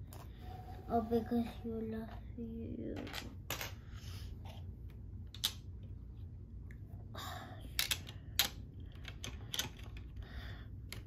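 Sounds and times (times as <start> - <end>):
plastic bricks clicking: 7.8 - 10.2.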